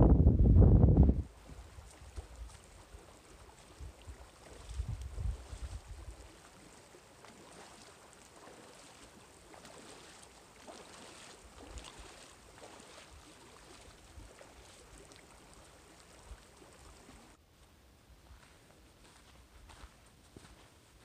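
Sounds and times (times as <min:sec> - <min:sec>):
boots splashing through water: 0:01.3 - 0:17.4
flowing water hiss: 0:01.3 - 0:17.4.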